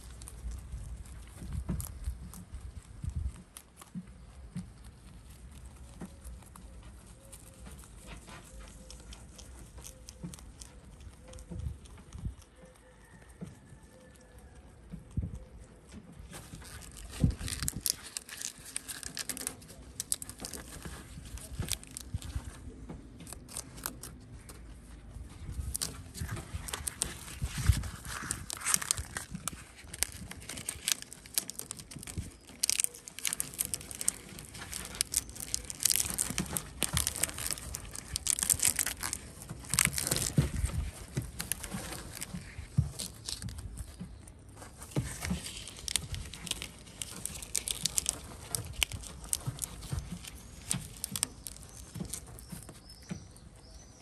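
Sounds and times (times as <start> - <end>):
rabbit chewing leaves: 0.0 - 54.0
straw bedding rustling: 16.2 - 54.0.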